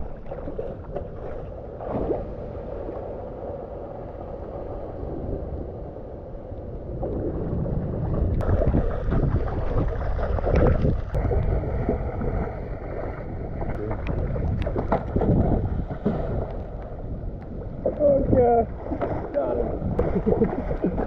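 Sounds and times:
floodwater sloshing: 0.0s - 21.0s
wind buffeting microphone: 4.6s - 21.0s.

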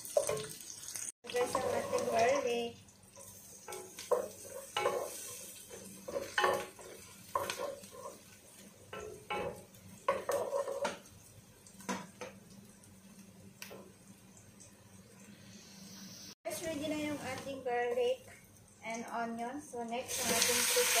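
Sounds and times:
light sizzle of frying: 0.0s - 21.0s
spatula scraping and knocking pot: 3.7s - 8.3s, 8.9s - 11.1s.

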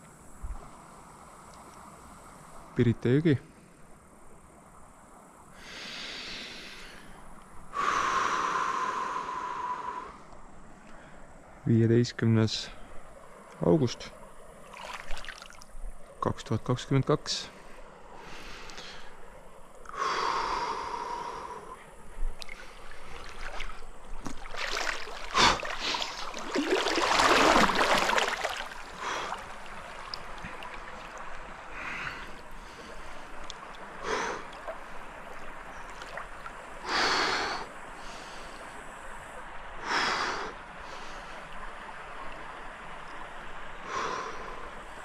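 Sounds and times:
river water splashing: 0.0s - 11.6s, 12.4s - 45.0s
person breathing: 5.6s - 10.3s, 17.6s - 19.2s, 19.9s - 21.9s, 28.9s - 29.5s, 31.7s - 33.2s, 34.0s - 34.5s.

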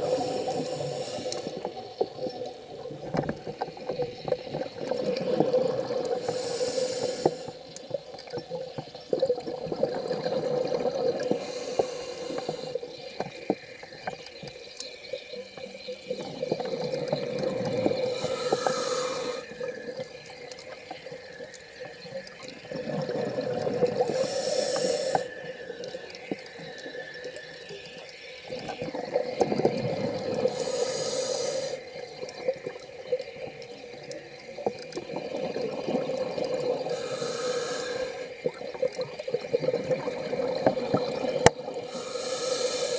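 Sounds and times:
regulator hiss: 0.0s - 2.3s, 3.1s - 7.9s, 11.2s - 22.4s, 23.7s - 42.9s
exhaled bubbles rushing: 4.6s - 6.2s, 9.2s - 11.5s, 22.4s - 24.2s, 28.5s - 30.6s, 34.9s - 37.0s, 38.3s - 41.9s.

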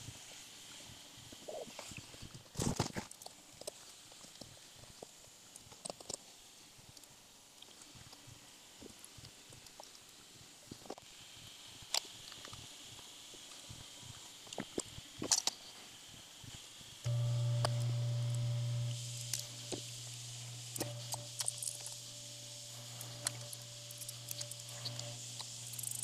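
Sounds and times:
steady low hum: 17.0s - 26.0s.

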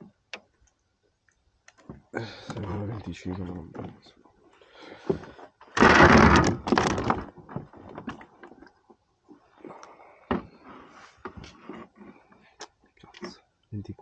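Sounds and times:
scraping on plastic kayak: 5.1s - 8.4s.

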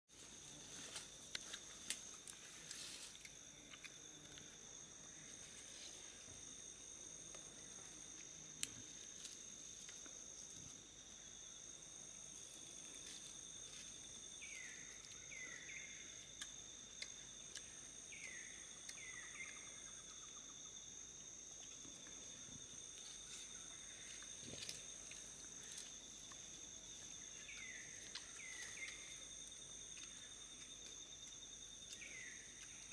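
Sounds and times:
high-pitched insect drone: 0.4s - 32.9s.

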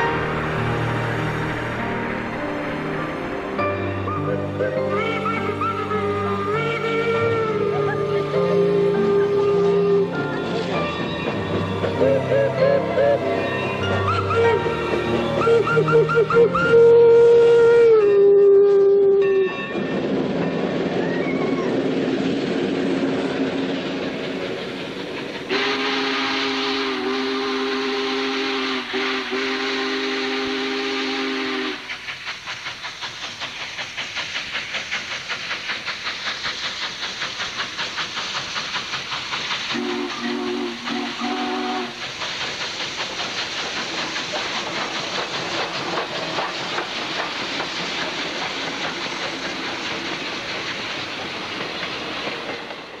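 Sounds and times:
hiss of steam: 0.0s - 18.0s, 19.8s - 53.0s
steam locomotive whistle: 0.0s - 19.6s, 25.5s - 32.0s, 39.6s - 42.1s
locomotive exhaust chuffing: 21.0s - 53.0s.

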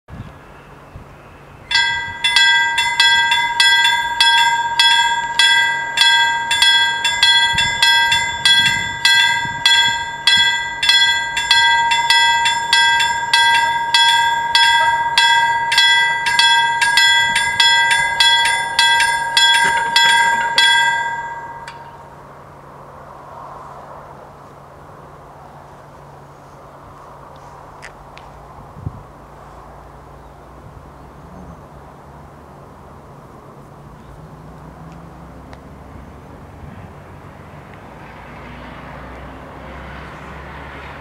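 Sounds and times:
level crossing warning bells: 1.7s - 22.2s.

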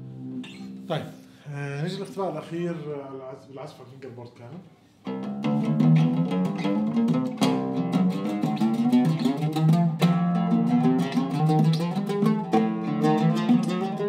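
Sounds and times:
oud played with plectrum: 0.0s - 2.8s, 4.5s - 14.0s.

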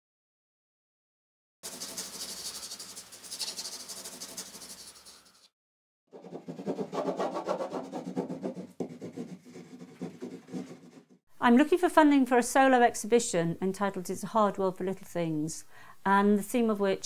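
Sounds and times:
dull rubbing on paper: 1.6s - 5.4s, 6.2s - 11.2s
pencil scratching on paper: 1.6s - 5.4s, 6.2s - 11.2s.

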